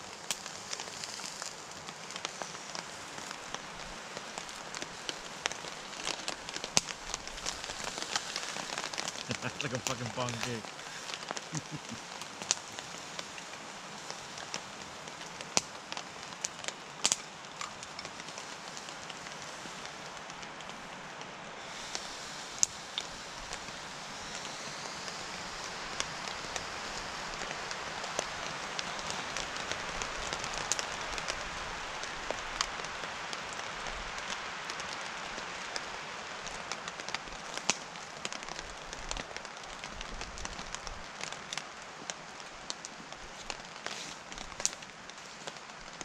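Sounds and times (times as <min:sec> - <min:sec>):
steak sizzling in frying pan: 0:00.2 - 0:19.2
fat spitting and crackling: 0:05.9 - 0:12.6.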